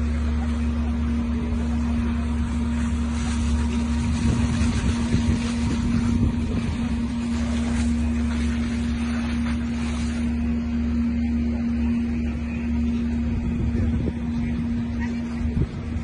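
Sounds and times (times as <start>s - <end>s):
engine running steadily: 0.0s - 16.0s.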